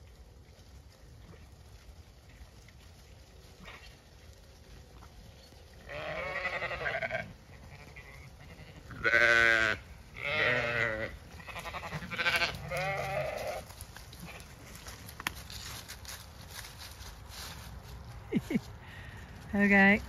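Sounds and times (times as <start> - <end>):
sheep bleating: 5.8 - 14.5.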